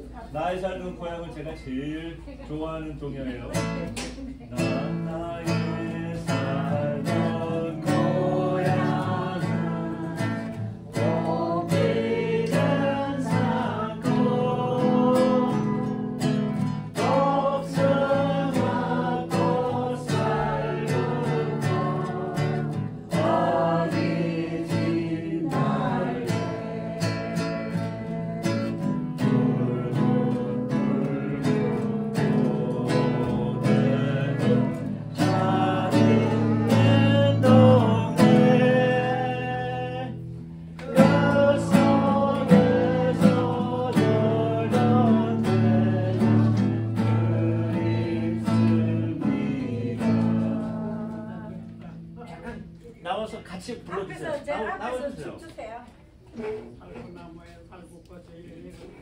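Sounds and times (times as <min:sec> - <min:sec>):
strummed acoustic guitar: 0:03.5 - 0:52.8
person singing: 0:40.9 - 0:51.6.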